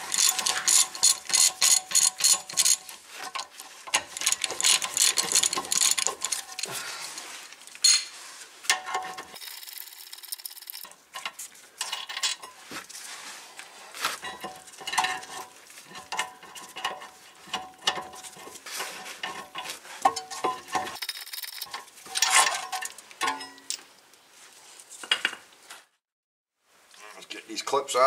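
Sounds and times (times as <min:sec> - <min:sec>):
metal parts clinking and scraping: 0:00.0 - 0:06.8, 0:07.8 - 0:12.6, 0:14.2 - 0:23.9.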